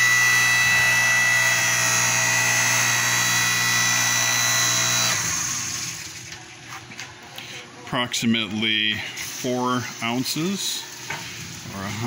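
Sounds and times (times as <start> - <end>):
log splitter motor humming and whining: 0.0 - 6.4.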